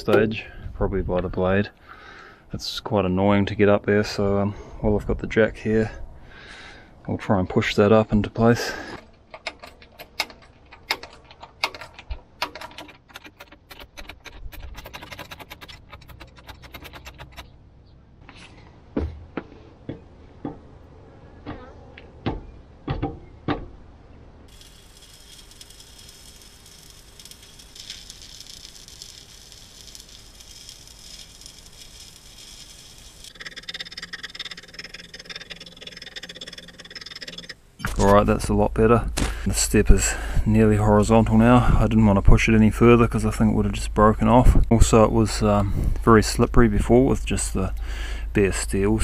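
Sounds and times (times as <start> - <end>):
bottle jack clicking and rattling: 8.9 - 17.4
welding arc crackling hiss: 24.5 - 33.5.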